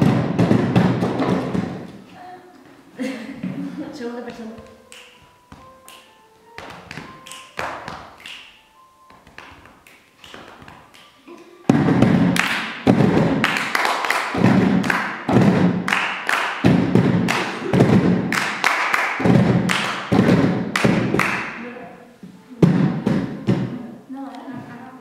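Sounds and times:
hand percussion on plastic boxes: 0.0 - 2.0, 4.6 - 21.6, 22.6 - 23.8
hand claps: 4.6 - 21.6.

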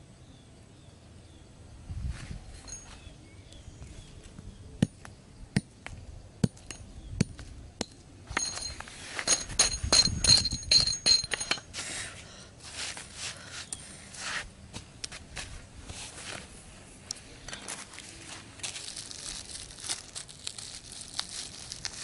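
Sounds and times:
metallic clinking and ringing: 2.6 - 3.1, 6.5 - 7.0, 7.8 - 11.8.

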